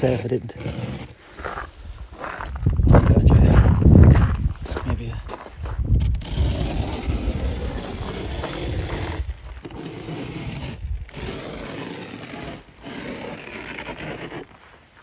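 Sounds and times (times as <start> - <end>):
fingertip scraping snow on glass: 0.0 - 1.6, 6.0 - 14.7.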